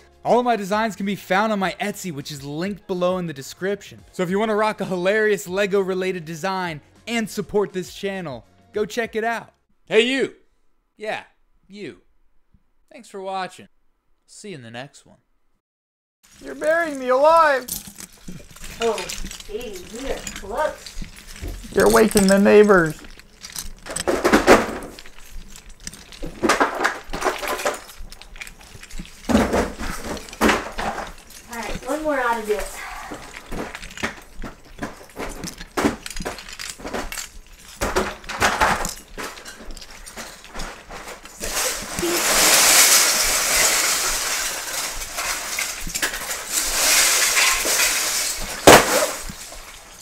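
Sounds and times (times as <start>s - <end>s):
plastic bricks clattering: 16.3s - 50.0s.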